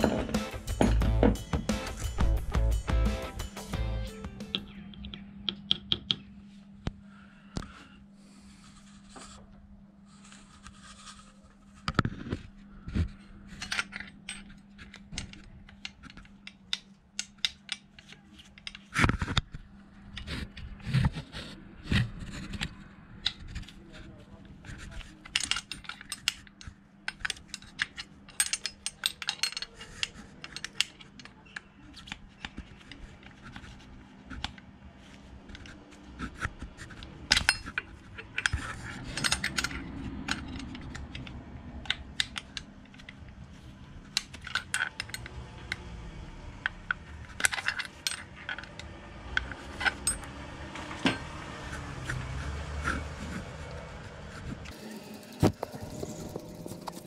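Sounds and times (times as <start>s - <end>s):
metal tools clinking: 27.1s - 31.6s, 37.3s - 40.9s, 47.3s - 50.4s.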